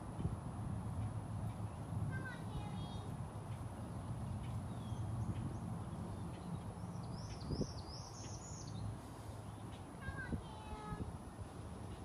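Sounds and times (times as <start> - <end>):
bird chirping: 3.5 - 10.0.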